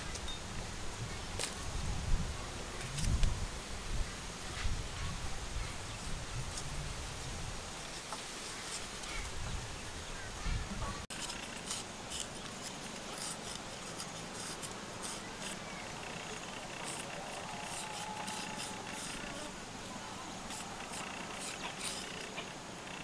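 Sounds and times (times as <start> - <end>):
knife shaving carrot: 11.1 - 19.6, 20.4 - 22.5.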